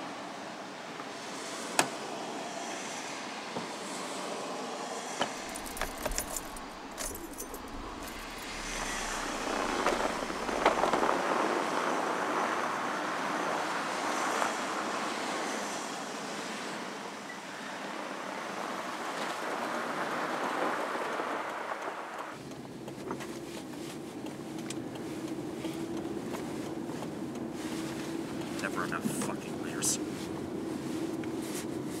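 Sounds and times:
car tyres on snow and slush: 0.0s - 32.0s
clicks and rattles: 5.4s - 11.0s
low engine rumble: 5.4s - 12.5s.

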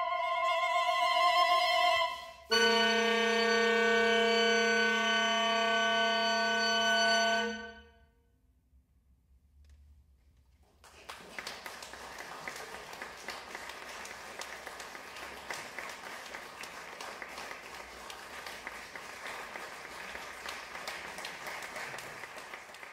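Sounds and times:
audience clapping: 10.6s - 22.9s.

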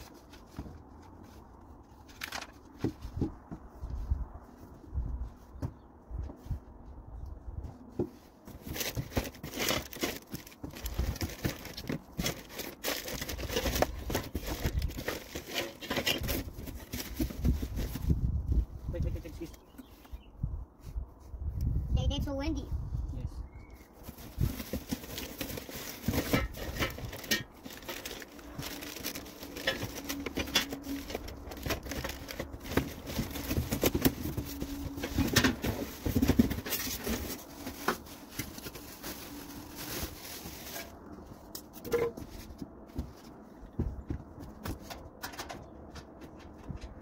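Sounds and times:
grill parts clicking and tapping: 24.8s - 38.6s, 43.8s - 47.0s.

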